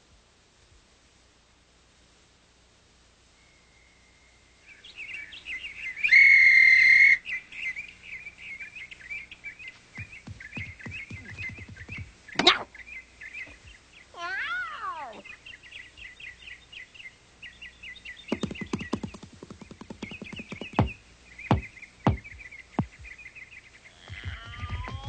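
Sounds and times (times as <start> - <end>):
cartoon bird-like chirping: 14.2 - 15.2, 23.9 - 25.0.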